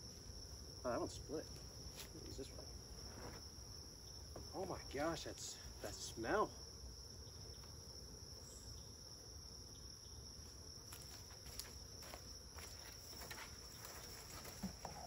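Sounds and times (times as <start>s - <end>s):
crickets trilling: 0.0s - 15.0s.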